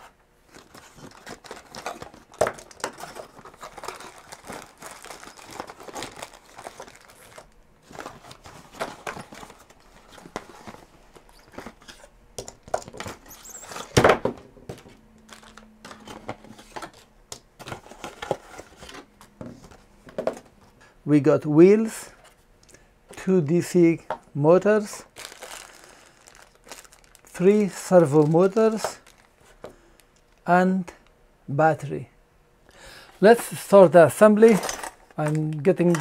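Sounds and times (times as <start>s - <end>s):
plastic packaging crinkling: 0.5s - 12.0s, 15.2s - 16.2s, 25.0s - 30.4s.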